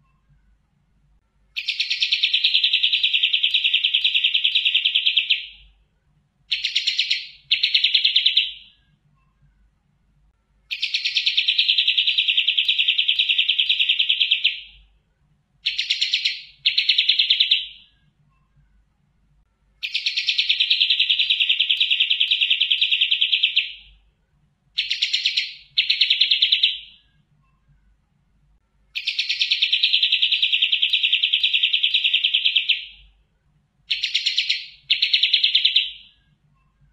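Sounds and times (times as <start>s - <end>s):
bird singing rattling trills: 1.6s - 5.7s, 6.5s - 8.8s, 10.7s - 14.8s, 15.6s - 18.0s, 19.8s - 24.0s, 24.8s - 27.0s, 29.0s - 33.1s, 33.9s - 36.2s.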